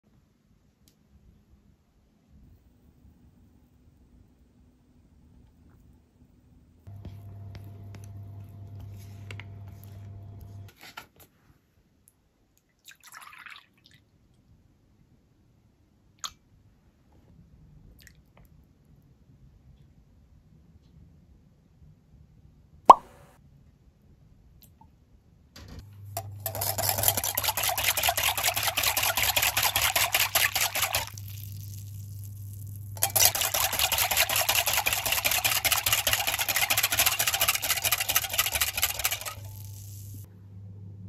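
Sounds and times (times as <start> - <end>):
sharp plop: 22.9 - 23.2
whisk beating in glass bowl: 26.3 - 31.2, 33.0 - 40.2
faint steady low hum: 39.4 - 41.0.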